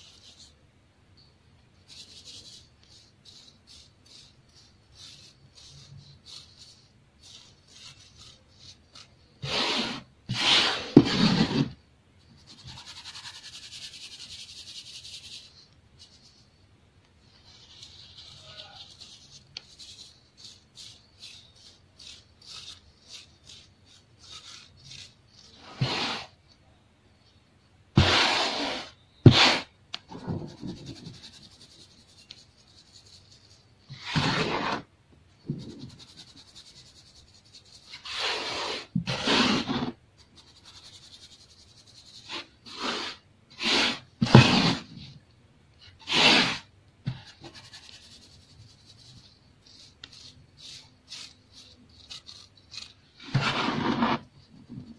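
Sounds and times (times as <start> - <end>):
gritty scraping against mesh sieve: 9.4 - 11.8, 33.9 - 34.9, 37.9 - 40.0, 49.8 - 54.3.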